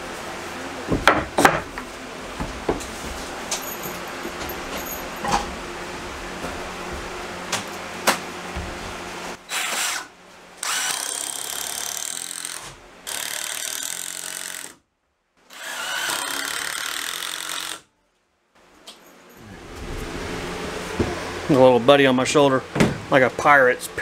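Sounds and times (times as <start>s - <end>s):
impact driver driving screws: 9.5s - 14.8s.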